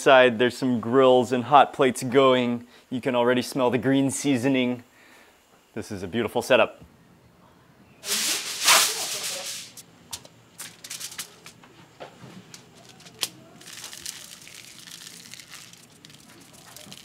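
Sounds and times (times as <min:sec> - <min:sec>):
foil and leaf rustling: 0:08.0 - 0:09.8, 0:10.6 - 0:11.6, 0:12.4 - 0:17.0.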